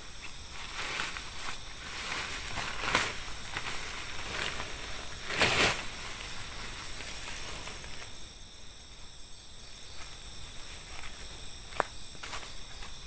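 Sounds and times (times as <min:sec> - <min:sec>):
tent fabric rustling: 0:00.0 - 0:08.2
insects calling: 0:00.0 - 0:13.0.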